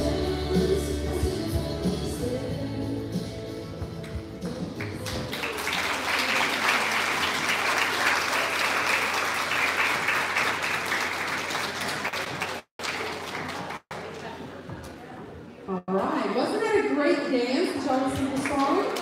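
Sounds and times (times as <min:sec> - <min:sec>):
music: 0:00.0 - 0:05.4
audience applauding: 0:04.8 - 0:14.2.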